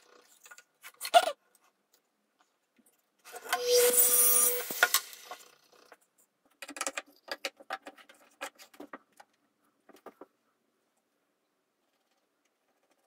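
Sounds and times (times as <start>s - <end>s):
mitre saw cutting wood: 3.3s - 5.5s.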